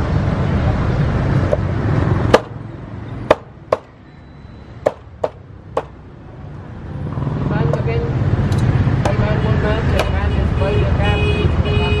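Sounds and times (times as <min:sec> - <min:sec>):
cleaver chopping on wooden block: 0:02.3 - 0:02.6, 0:03.2 - 0:04.0, 0:04.8 - 0:06.0, 0:10.0 - 0:10.2.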